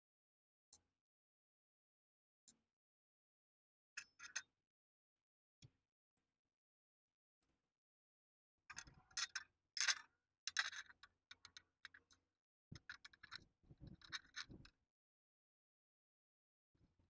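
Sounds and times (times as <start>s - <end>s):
metal bolts clicking and scraping: 8.8s - 12.0s, 12.8s - 14.6s.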